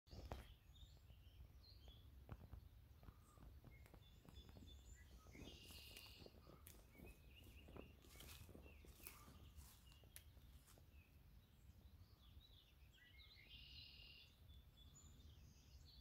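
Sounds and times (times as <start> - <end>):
birds chirping and whistling: 0.1 - 11.1, 11.9 - 16.0
faint ticks and rustles: 2.2 - 10.9.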